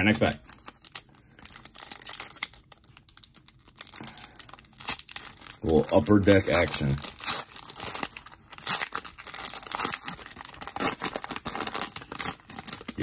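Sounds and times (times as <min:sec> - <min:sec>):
foil wrapper tearing and crinkling: 0:00.0 - 0:13.0.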